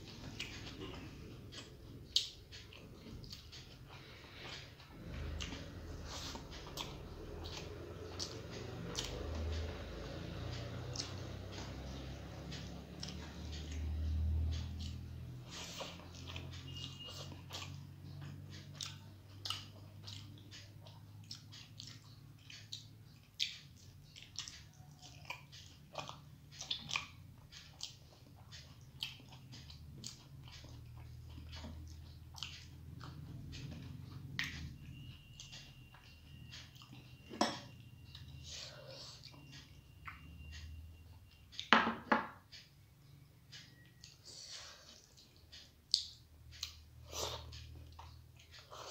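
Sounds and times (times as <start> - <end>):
close chewing: 0.0 - 37.2, 43.5 - 48.9
wet mouth clicks and smacks: 45.9 - 46.8.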